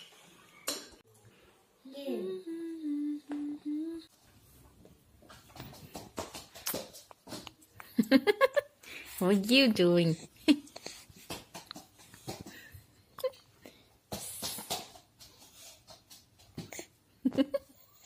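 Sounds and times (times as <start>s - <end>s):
person humming a held note: 2.2s - 4.1s.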